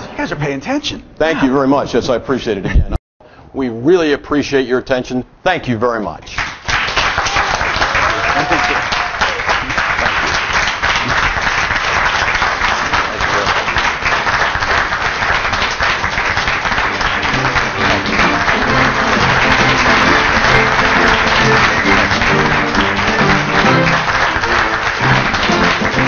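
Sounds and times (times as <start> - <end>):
crowd applauding: 6.4 - 26.0
music: 16.7 - 26.0.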